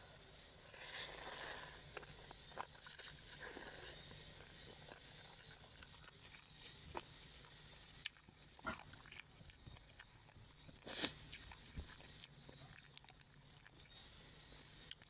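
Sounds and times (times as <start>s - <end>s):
chewing with wet clicks: 1.9s - 15.0s.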